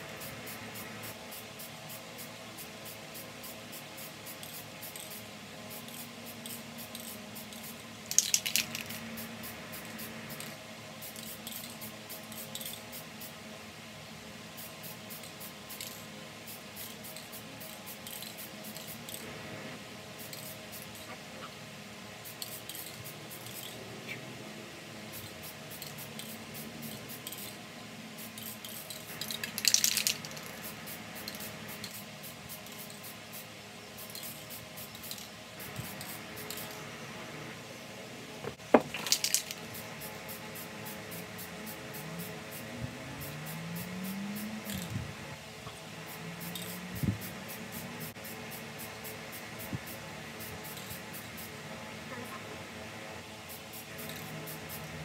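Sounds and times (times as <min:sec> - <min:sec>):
spray paint can hissing: 0:00.0 - 0:13.5, 0:14.4 - 0:19.3, 0:20.1 - 0:21.2, 0:22.2 - 0:23.8, 0:25.0 - 0:36.8, 0:38.5 - 0:45.1, 0:45.8 - 0:52.2, 0:53.4 - 0:55.0.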